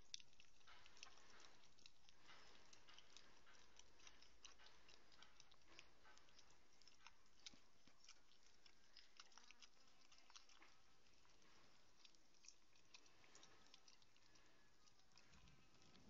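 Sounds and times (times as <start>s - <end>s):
dog licking and chewing: 0.0s - 16.0s.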